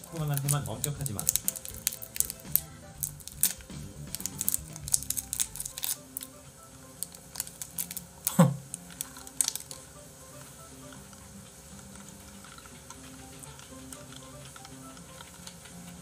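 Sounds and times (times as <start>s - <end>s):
candy wrapper crinkling: 0.0s - 6.4s, 7.0s - 9.9s
soft background music: 0.0s - 16.0s.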